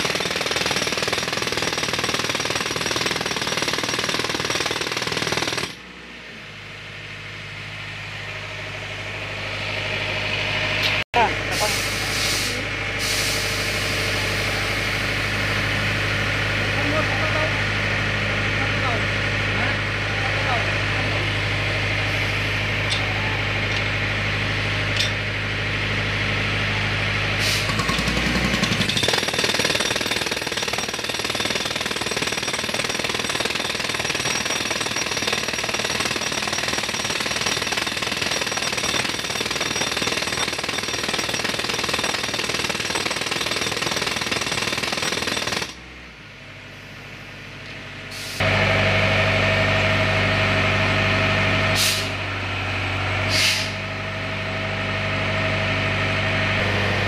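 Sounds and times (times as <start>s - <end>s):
diesel compressor engine running: 5.2s - 40.9s, 45.3s - 57.0s
air hissing: 11.6s - 13.9s.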